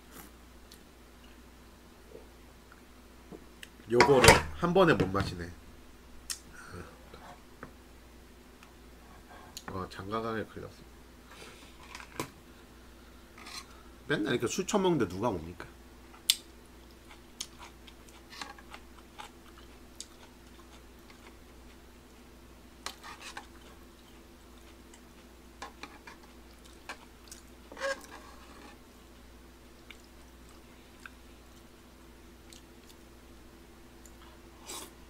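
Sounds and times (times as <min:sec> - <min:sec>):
faint steady hum: 0:00.0 - 0:35.0
chewing and mouth smacks: 0:16.2 - 0:21.4, 0:26.3 - 0:27.6, 0:29.8 - 0:31.7, 0:32.4 - 0:33.1.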